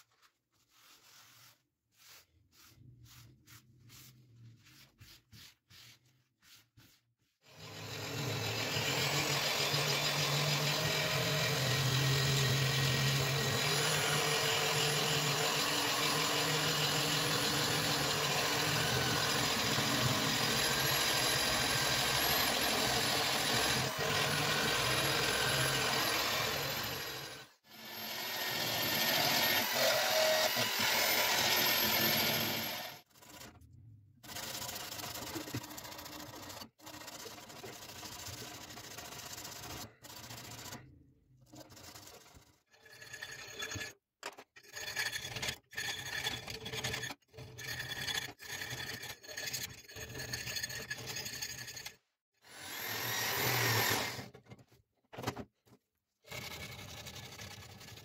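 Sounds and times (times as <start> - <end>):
rotary tool grinding metal: 7.4 - 33.6, 41.5 - 54.3.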